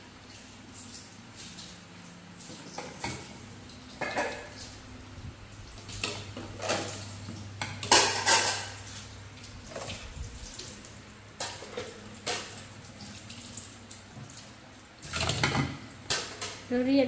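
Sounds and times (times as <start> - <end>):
dishes clattering in sink: 2.4 - 4.8, 5.8 - 10.7, 11.4 - 13.2, 15.0 - 16.7.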